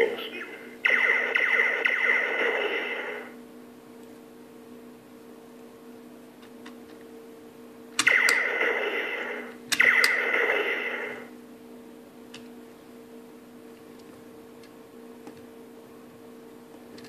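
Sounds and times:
faint steady hum: 0.0s - 17.0s
toy blaster zapping tones: 0.8s - 3.3s, 8.0s - 11.2s.

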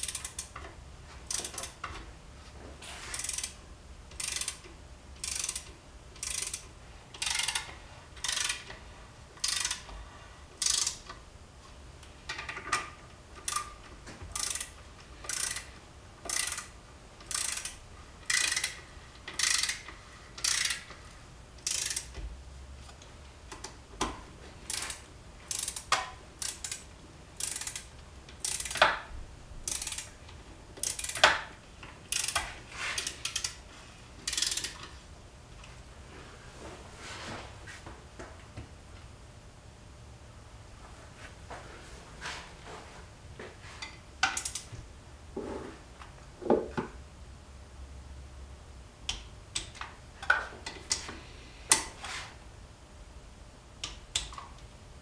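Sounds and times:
ratchet wrench clicking: 0.0s - 1.9s, 3.1s - 8.8s, 9.4s - 9.9s, 10.6s - 11.2s, 13.4s - 13.8s, 14.4s - 21.0s, 21.6s - 22.2s, 24.7s - 30.1s, 30.8s - 33.6s, 34.2s - 34.9s, 44.2s - 44.7s.

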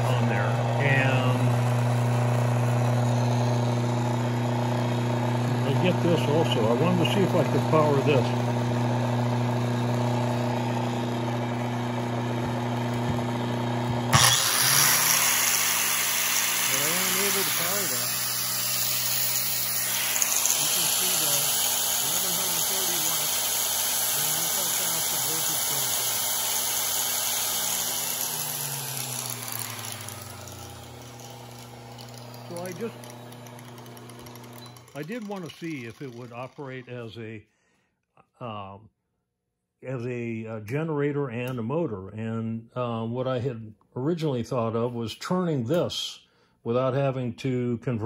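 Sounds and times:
angle grinder whining: 0.0s - 37.2s
electric motor humming: 0.0s - 37.2s.

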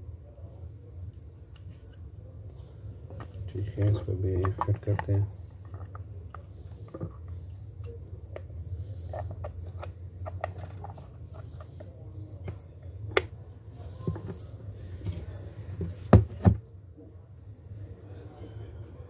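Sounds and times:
steady low hum: 0.0s - 19.0s
knocks on plastic housing: 16.1s - 16.6s.

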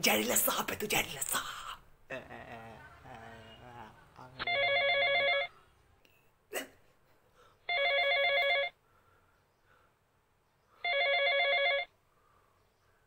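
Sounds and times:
mobile phone ringing: 4.4s - 5.6s, 7.7s - 8.8s, 10.8s - 12.0s.

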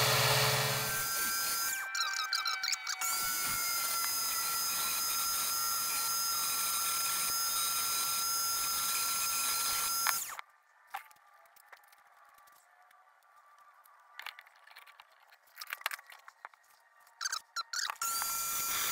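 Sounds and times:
rotary tool whining: 0.0s - 10.4s, 17.2s - 18.9s.

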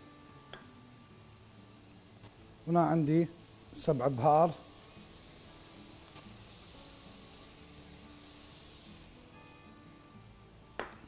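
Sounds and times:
faint background music: 0.0s - 11.0s
vegetables frying in a pan: 0.0s - 11.0s.

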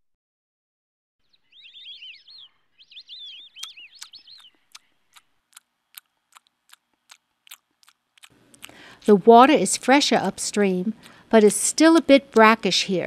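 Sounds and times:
songbird chirping: 1.2s - 8.3s.

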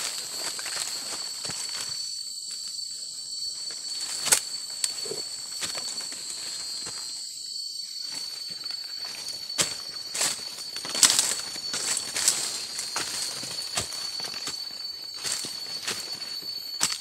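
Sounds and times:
insects droning: 0.0s - 17.0s
footsteps through dry leaves: 8.5s - 17.0s.

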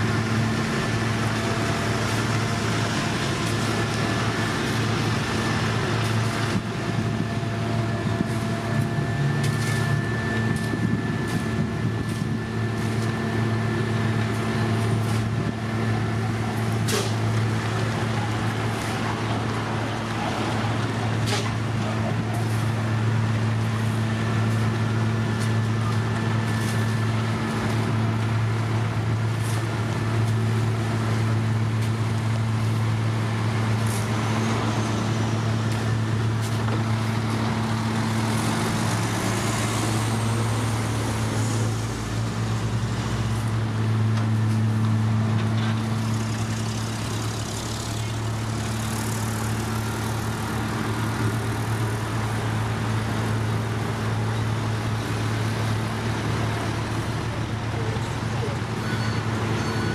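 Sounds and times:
diesel engines humming: 0.0s - 59.9s.

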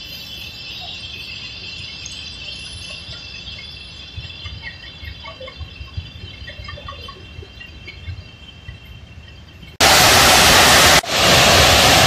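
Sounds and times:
train wheels rumbling on track: 2.8s - 12.0s.

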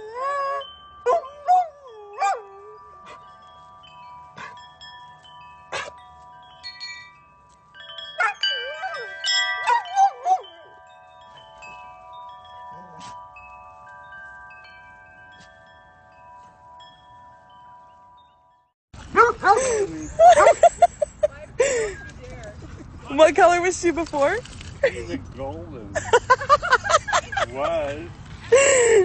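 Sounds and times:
metal wind chime clanging: 0.0s - 29.0s
dog howling: 8.2s - 10.8s.

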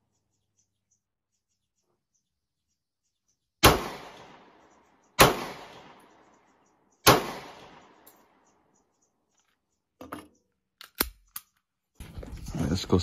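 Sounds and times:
pistol shots: 3.6s - 4.6s, 5.2s - 6.2s, 7.0s - 8.2s.

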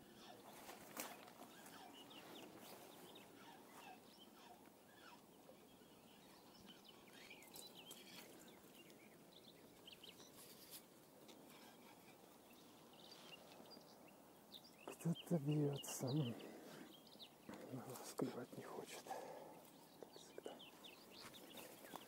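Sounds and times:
short bird calls: 0.0s - 9.2s.

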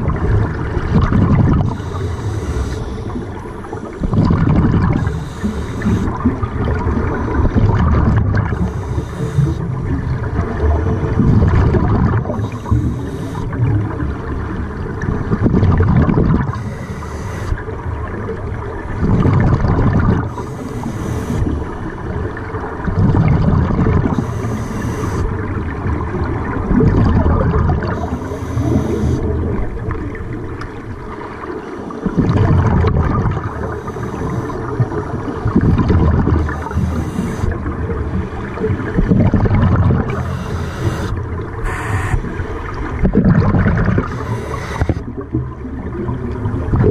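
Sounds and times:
exhaled bubbles rumbling: 0.0s - 46.9s
hissing regulator inhalation: 1.6s - 4.0s, 4.9s - 6.2s, 8.5s - 9.6s, 12.3s - 13.6s, 16.5s - 17.6s, 20.3s - 21.6s, 24.1s - 25.3s, 28.0s - 29.3s, 33.6s - 34.7s, 36.3s - 37.6s, 40.0s - 42.3s, 44.0s - 45.0s.

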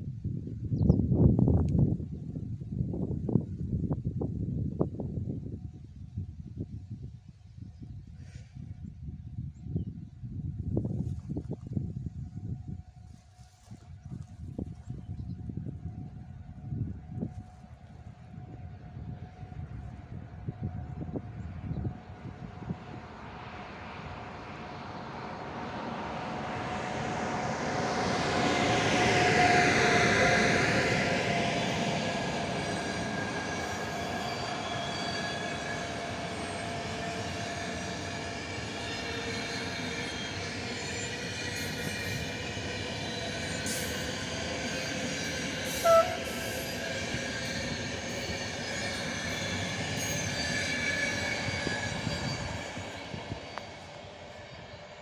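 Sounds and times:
passenger train rolling past: 11.7s - 55.0s
train horn signal: 16.0s - 23.2s, 28.1s - 38.3s, 45.3s - 47.6s.

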